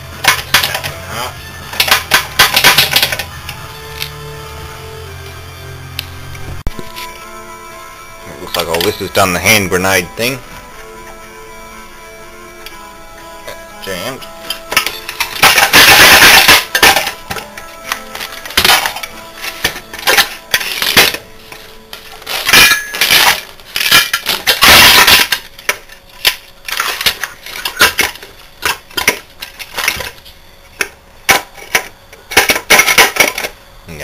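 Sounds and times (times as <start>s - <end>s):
loose metal pieces knocking: 0.2s - 1.0s, 1.7s - 3.3s, 14.2s - 30.2s, 30.8s - 33.6s
metal clanking and clinking: 0.2s - 1.0s, 1.7s - 3.6s, 13.5s - 30.2s, 30.8s - 33.6s.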